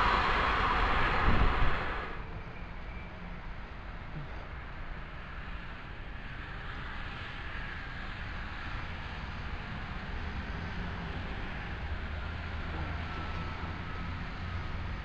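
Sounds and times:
train approaching rumble: 0.0 - 15.0.

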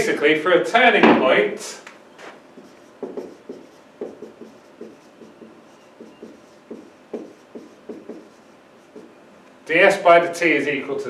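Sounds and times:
marker pen writing on whiteboard: 2.2 - 9.2.

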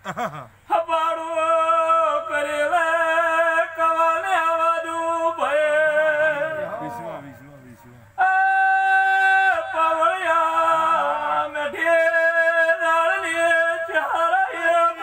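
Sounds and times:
man singing long held notes: 0.6 - 15.0.

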